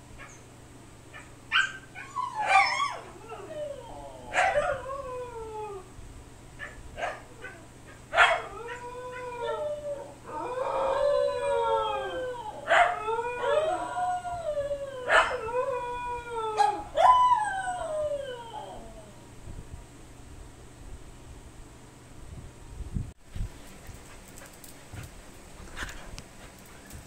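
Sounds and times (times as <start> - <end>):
dogs howling and yipping: 1.5 - 5.9, 6.6 - 19.1.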